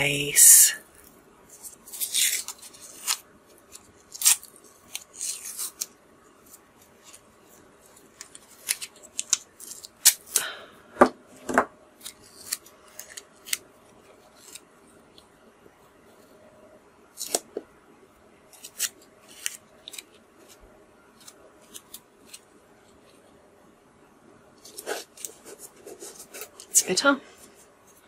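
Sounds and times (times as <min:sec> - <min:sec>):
pencil scratching on paper: 0:24.8 - 0:26.6.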